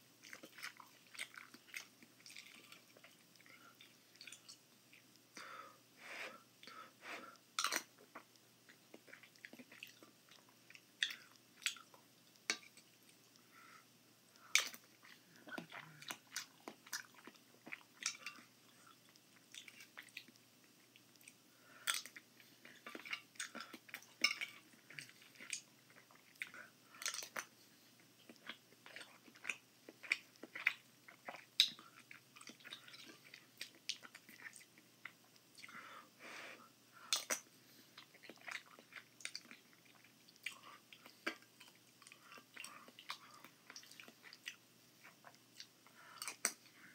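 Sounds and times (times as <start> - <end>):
person chewing food: 0.2 - 36.1, 36.9 - 46.9
mouth clicks and smacks: 7.4 - 13.5, 37.1 - 46.7.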